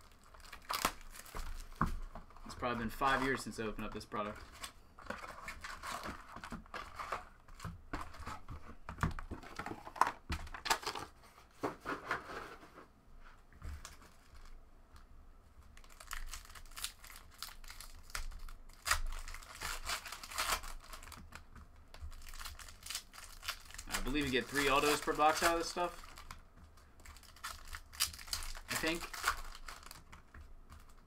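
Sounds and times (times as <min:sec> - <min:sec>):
foil wrappers crinkling and tearing: 0:00.0 - 0:03.5, 0:15.8 - 0:31.0.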